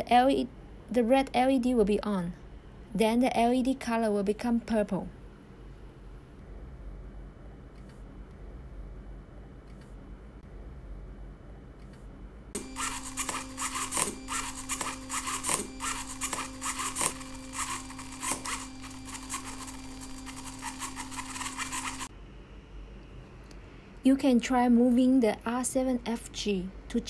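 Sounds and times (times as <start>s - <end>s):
toy car electric motor whirring: 12.6s - 22.1s.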